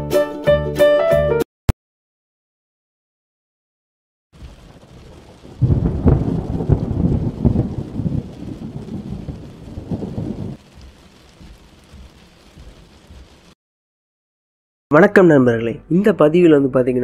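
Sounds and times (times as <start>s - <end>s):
rolling thunder rumble: 4.4s - 13.6s
steady rain: 4.4s - 13.6s.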